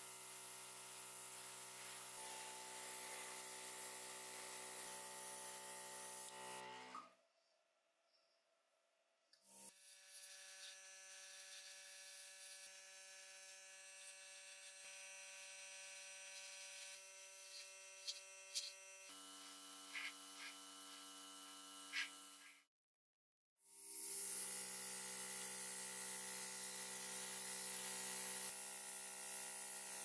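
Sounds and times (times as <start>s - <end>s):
airbrush compressor humming: 0.0s - 6.9s, 9.5s - 22.6s.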